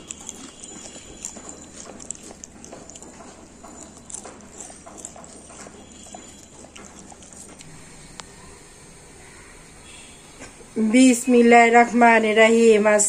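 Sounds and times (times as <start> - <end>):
potato chips crackling and crunching: 0.0 - 7.8.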